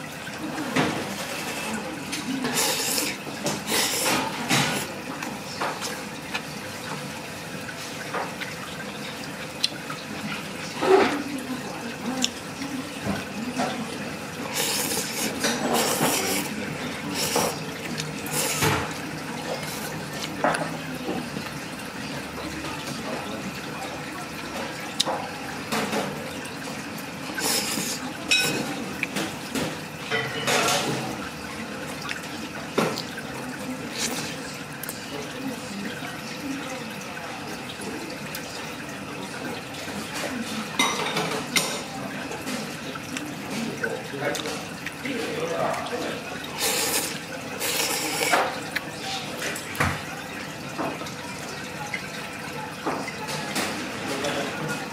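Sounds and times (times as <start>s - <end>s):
chopsticks stirring soup: 0.3s - 6.5s, 12.1s - 21.6s, 27.2s - 30.9s, 32.0s - 35.2s, 40.0s - 49.7s
noodles slurped: 1.2s - 4.9s, 14.4s - 20.4s, 27.3s - 28.2s, 33.8s - 35.0s, 46.5s - 48.9s.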